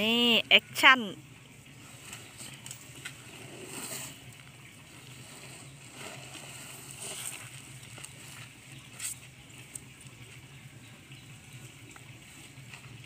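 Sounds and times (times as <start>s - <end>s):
soft scrapes: 1.8s - 9.3s
rustling in dry straw: 1.8s - 10.3s.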